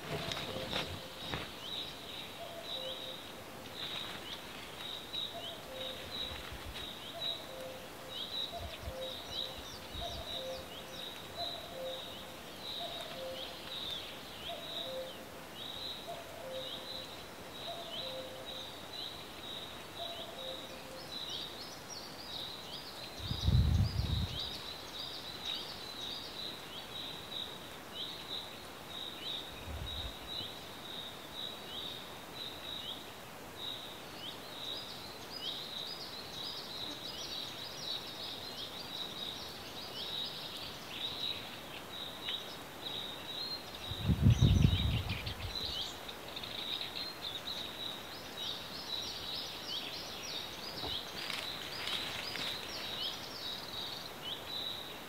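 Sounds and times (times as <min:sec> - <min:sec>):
faint outdoor hiss: 0:00.0 - 0:55.0
low rumble on microphone: 0:43.9 - 0:45.6.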